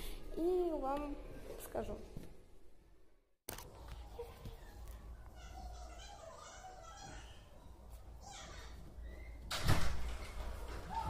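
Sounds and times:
distant children's voices: 0:03.8 - 0:11.0.

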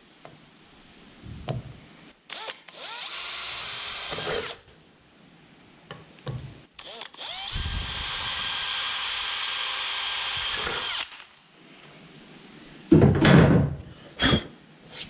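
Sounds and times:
cordless drill whining: 0:02.3 - 0:04.6, 0:06.8 - 0:11.3.

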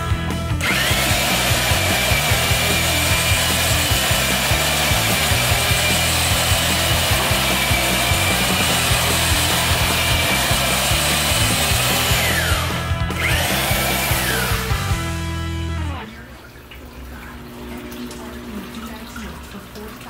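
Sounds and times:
honing machine grinding: 0:00.6 - 0:15.1.

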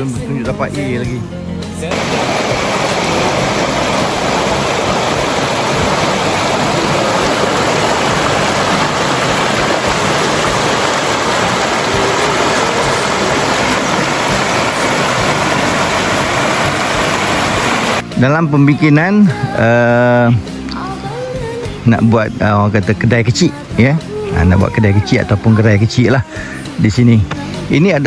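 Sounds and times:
river rapids rushing: 0:01.9 - 0:18.1.

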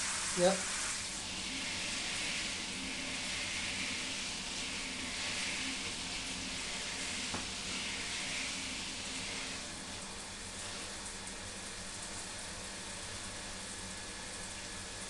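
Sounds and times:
shower head spraying water: 0:00.0 - 0:12.4.

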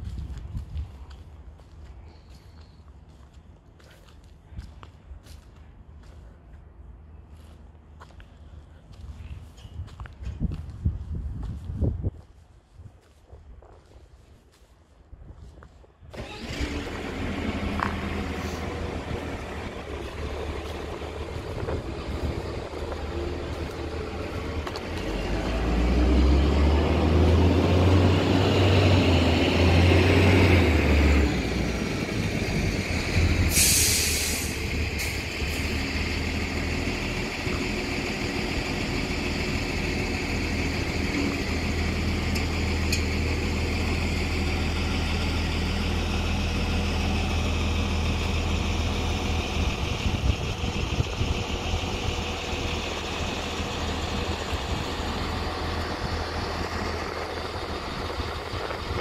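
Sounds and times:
diesel engine humming: 0:16.1 - 0:59.0
burst of hiss: 0:33.5 - 0:34.6.

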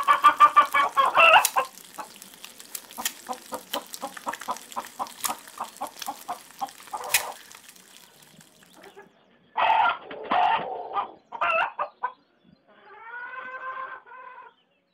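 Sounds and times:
rapid crackling clicks: 0:00.0 - 0:08.8
hen clucking: 0:00.0 - 0:09.0, 0:09.6 - 0:12.2.

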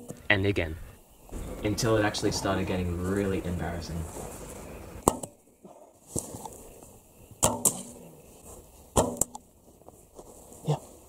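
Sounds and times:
arrow knocking: 0:05.0 - 0:05.4, 0:07.4 - 0:08.0, 0:09.0 - 0:09.4.

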